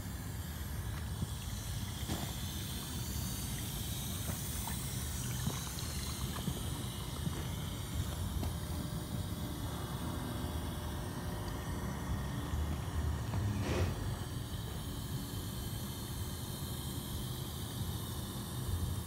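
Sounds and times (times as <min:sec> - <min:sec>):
dishwasher pump running: 0:00.0 - 0:10.5.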